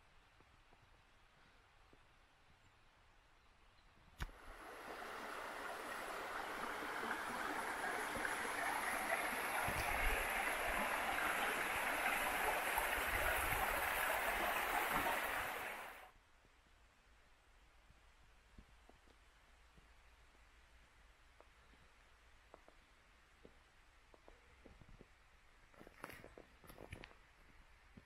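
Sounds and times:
stream flowing: 4.2s - 16.1s.

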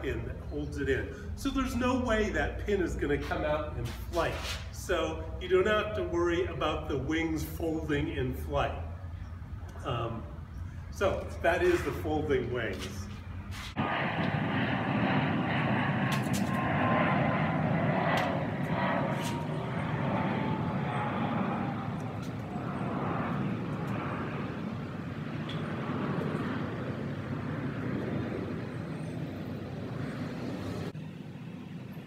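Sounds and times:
airplane engine drone: 0.0s - 32.0s.

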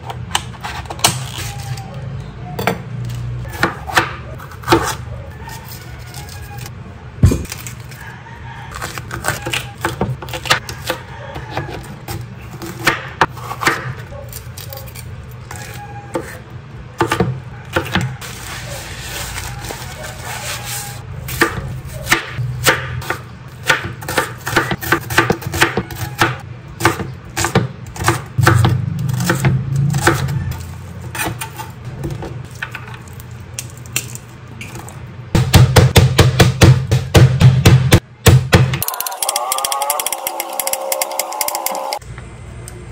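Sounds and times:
knife chopping on cutting board: 21.3s - 30.3s.

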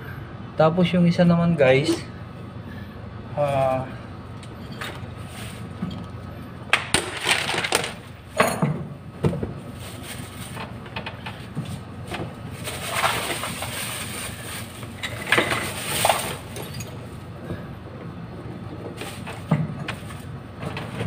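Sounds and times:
hand tools and wires clinking: 12.7s - 17.0s.

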